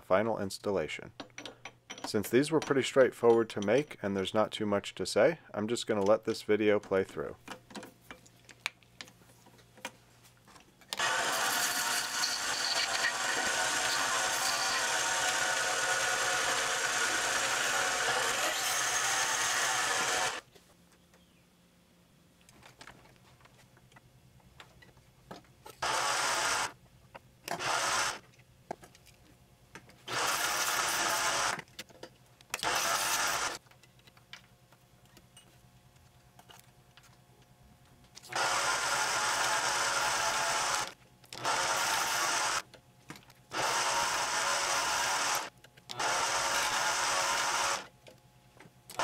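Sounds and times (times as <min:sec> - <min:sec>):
lathe cutting metal: 0:11.0 - 0:20.4.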